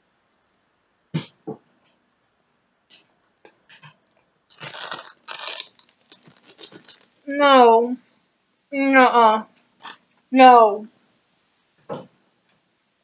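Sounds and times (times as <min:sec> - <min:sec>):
crunching and chewing gingerbread: 0:04.5 - 0:07.2, 0:09.8 - 0:10.0.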